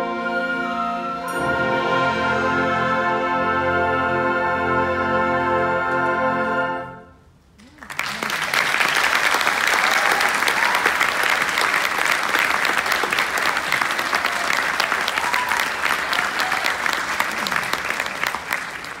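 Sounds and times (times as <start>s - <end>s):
large audience applauding: 7.6s - 19.0s.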